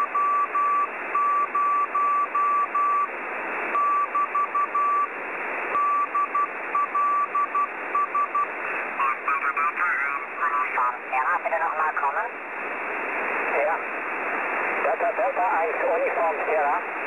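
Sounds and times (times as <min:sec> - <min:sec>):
receiver hiss: 0:00.0 - 0:17.0
morse code beeping tone: 0:00.1 - 0:03.1, 0:03.8 - 0:05.1, 0:05.8 - 0:08.5.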